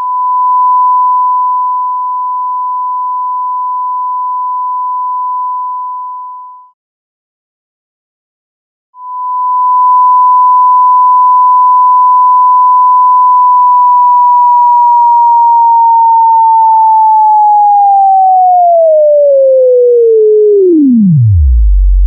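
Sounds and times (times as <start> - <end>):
pure sine tone sliding down: 9.0 - 22.0.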